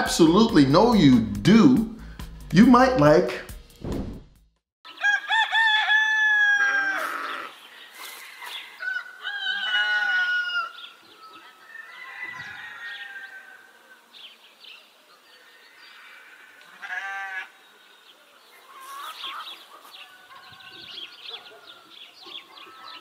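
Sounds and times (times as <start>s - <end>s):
animal wavering cries: 16.0s - 17.6s.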